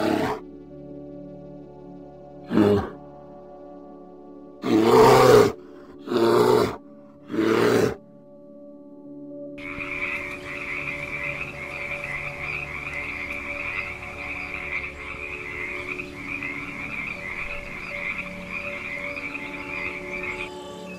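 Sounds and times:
frogs trilling in chorus: 9.6s - 20.9s.

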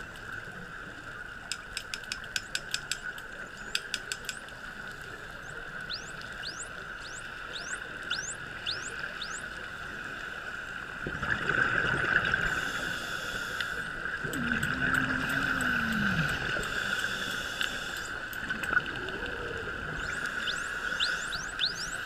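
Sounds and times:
dolphins whistling underwater: 5.2s - 9.7s, 18.8s - 22.0s
low wavering tone: 14.2s - 16.7s.

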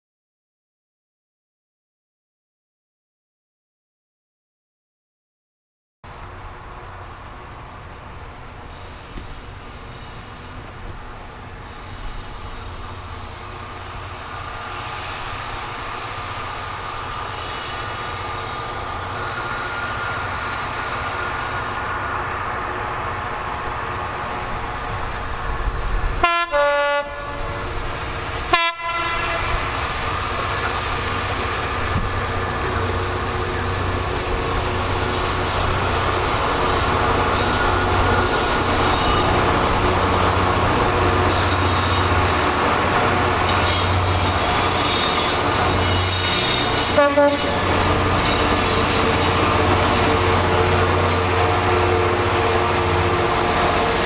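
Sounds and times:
diesel locomotive engine: 6.1s - 54.0s
train horn: 26.2s - 27.6s, 28.5s - 29.8s, 46.8s - 48.0s.

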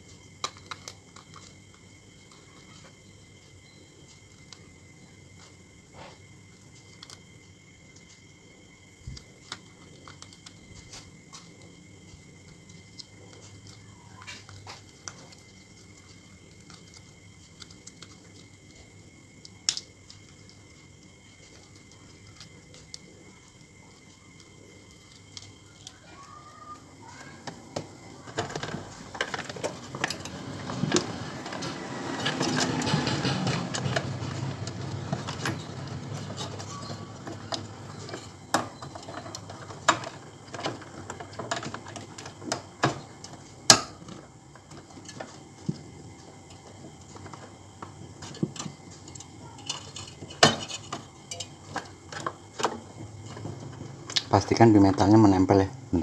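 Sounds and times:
hands handling wires rustling: 19.5s - 55.2s.

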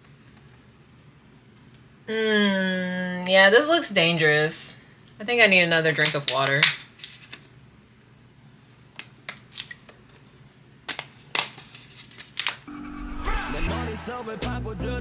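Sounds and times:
music: 12.7s - 15.0s.

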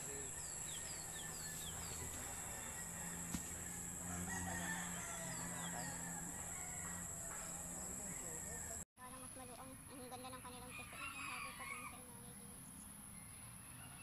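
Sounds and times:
bird chirps: 0.0s - 2.3s
rooster crowing: 0.0s - 8.8s, 10.7s - 12.1s
insects droning: 0.0s - 12.8s.

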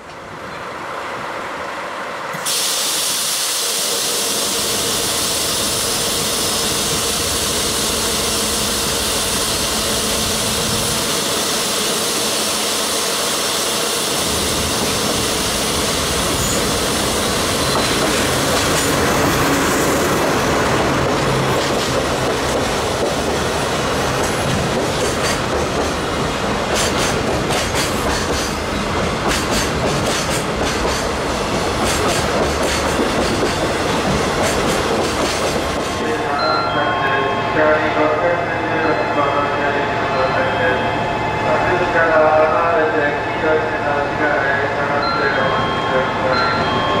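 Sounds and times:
diesel locomotive rumbling: 4.2s - 47.0s
train wheels clicking over rail joints: 16.3s - 36.0s.

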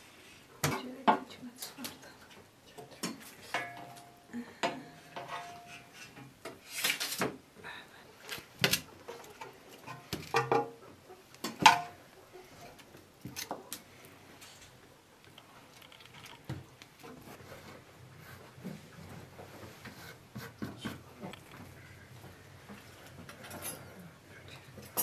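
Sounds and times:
cutlery and dishes clinking: 3.0s - 4.1s, 23.4s - 23.9s, 24.8s - 25.0s.

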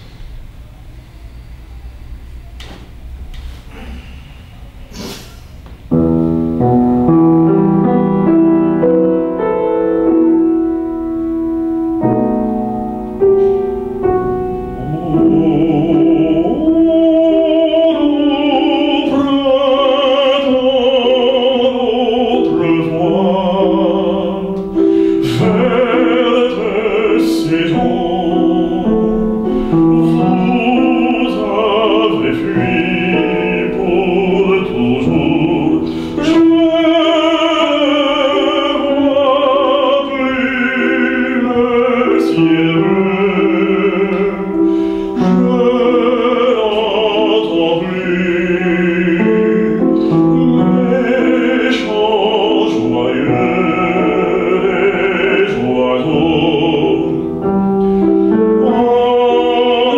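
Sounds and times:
grand piano: 0.0s - 59.9s
man singing operatically: 14.6s - 57.6s, 58.3s - 59.9s.

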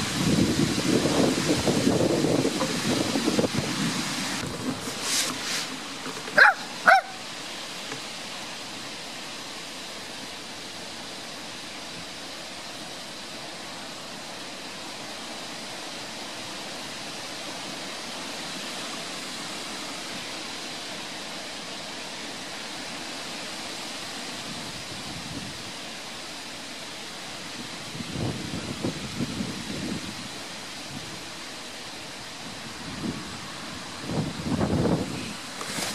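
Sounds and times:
steady outdoor hiss: 0.0s - 35.9s
small dog yipping: 6.4s - 7.2s.

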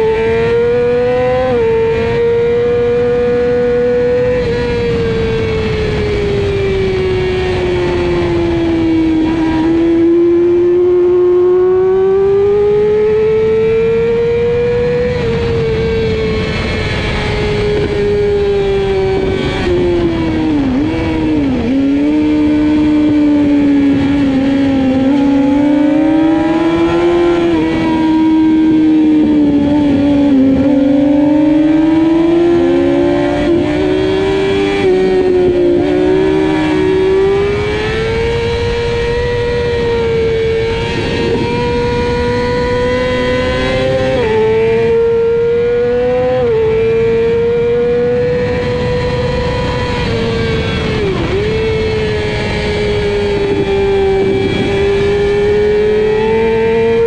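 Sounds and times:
motorbike engine at high revs: 0.0s - 57.0s
wind rush: 12.8s - 57.0s.

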